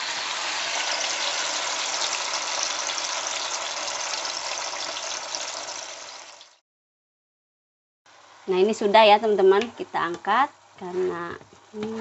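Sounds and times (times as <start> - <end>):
sambal sizzling in hot oil: 0.0 - 6.6.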